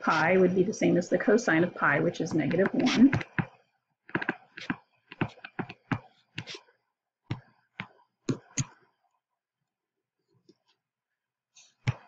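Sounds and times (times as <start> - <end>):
stylus tapping on tablet screen: 2.4 - 6.6, 7.3 - 8.8.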